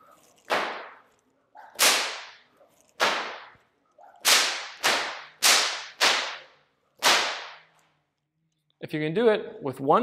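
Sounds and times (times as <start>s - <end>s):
whip cracking: 0.4s - 1.1s, 1.7s - 3.6s, 4.2s - 7.8s.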